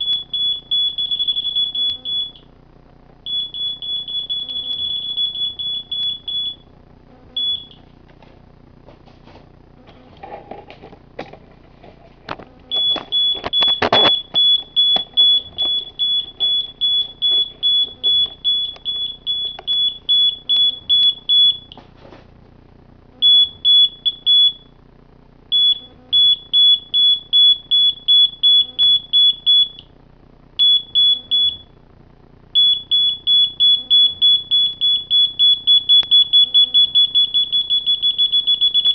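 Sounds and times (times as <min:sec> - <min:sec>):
electronic beeper pulsing: 0:00.0 - 0:02.4, 0:03.3 - 0:06.6, 0:07.3 - 0:07.8, 0:12.7 - 0:21.8, 0:23.2 - 0:24.7, 0:32.6 - 0:38.9.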